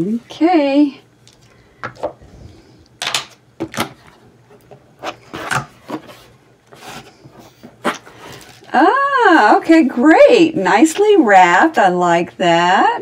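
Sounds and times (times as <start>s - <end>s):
cardboard rustling: 3.8s - 8.7s.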